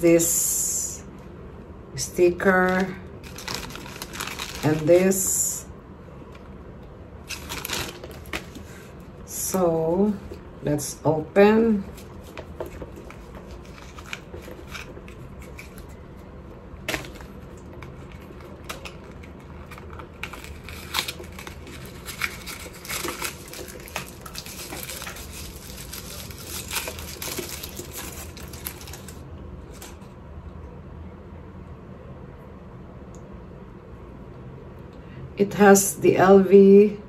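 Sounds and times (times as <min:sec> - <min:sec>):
fabric rustling and crinkling: 0:02.8 - 0:05.1, 0:16.9 - 0:30.0.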